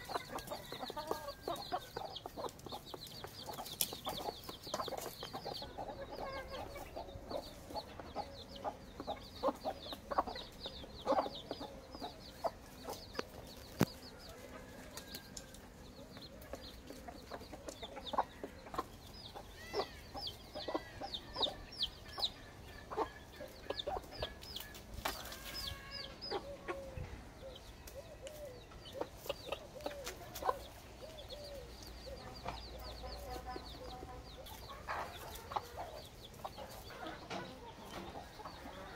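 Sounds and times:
chicks peeping: 0:00.0 - 0:38.9
hen clucking: 0:00.0 - 0:38.9.

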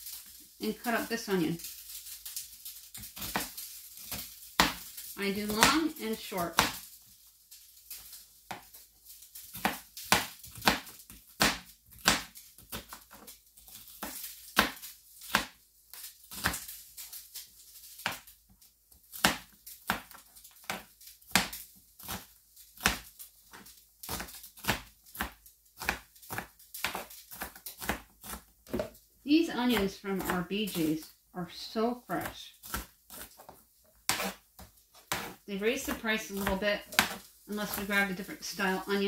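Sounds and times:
knife chopping on cutting board: 0:09.5 - 0:13.0, 0:24.1 - 0:29.0, 0:32.2 - 0:34.4, 0:35.0 - 0:37.9.

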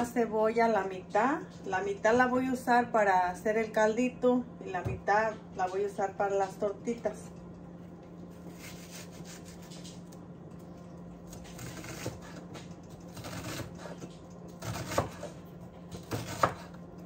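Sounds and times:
onion scraping on cutting board: 0:08.5 - 0:10.0, 0:11.4 - 0:16.8.

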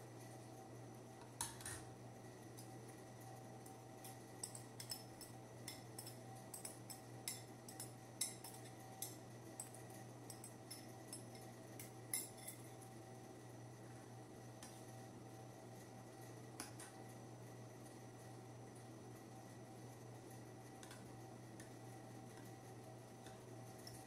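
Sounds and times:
faint steady hum: 0:00.0 - 0:24.0
metal spoon clinking on glass bowl: 0:04.4 - 0:12.7.

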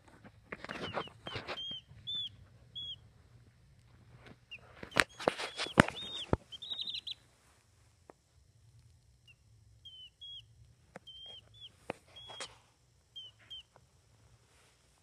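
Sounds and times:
baby chicks peeping: 0:00.0 - 0:07.3, 0:09.2 - 0:13.8
rustling: 0:00.0 - 0:08.0.

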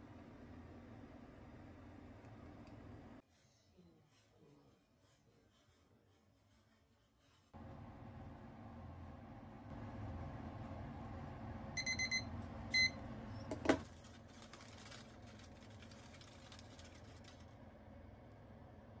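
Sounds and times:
kitchen timer beeping: 0:11.8 - 0:13.1.

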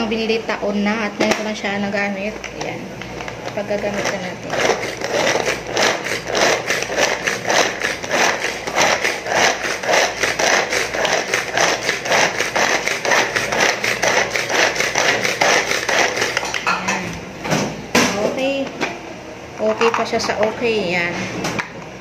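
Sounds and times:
pull-string food chopper: 0:03.9 - 0:16.6.

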